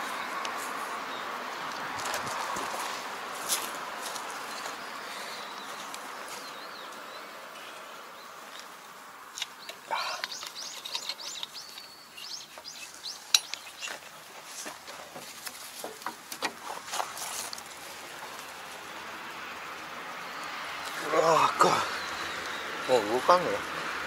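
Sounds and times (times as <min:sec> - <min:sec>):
birds chirping: 0:00.0 - 0:24.0
metal clinks and knocks: 0:13.2 - 0:14.0.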